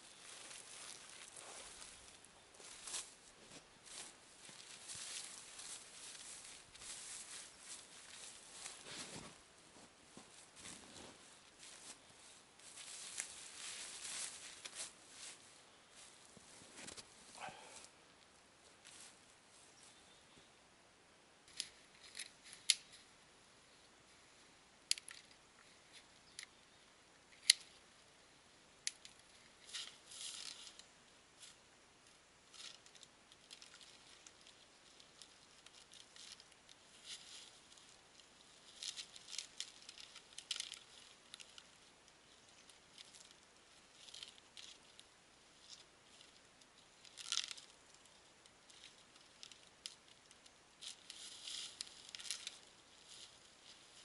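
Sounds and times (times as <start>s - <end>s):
bark tearing and crackling: 38.6s - 41.7s, 47.0s - 47.8s, 50.8s - 52.7s.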